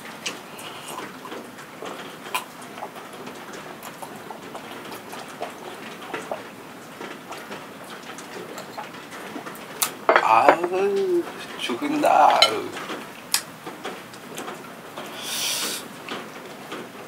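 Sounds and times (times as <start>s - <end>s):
rain falling: 0.0s - 17.0s
water drips and ticks: 1.0s - 10.0s, 12.6s - 15.1s.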